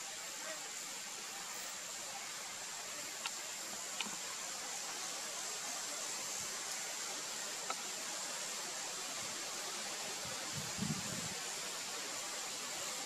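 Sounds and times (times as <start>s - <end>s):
steady background hiss: 0.0s - 13.0s
faint clicks: 3.0s - 4.3s, 7.6s - 7.9s.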